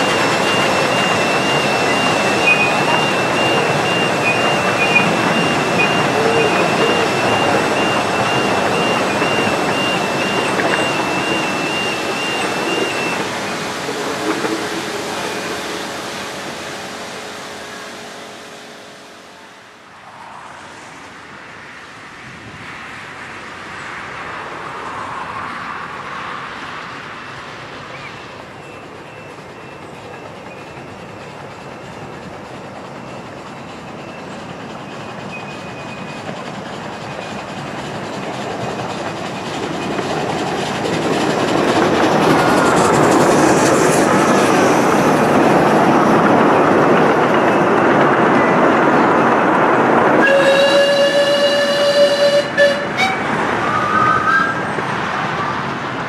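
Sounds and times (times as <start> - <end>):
steam whistle: 0.0 - 17.9, 50.2 - 54.6
train rumble and wheel clatter: 0.0 - 56.0.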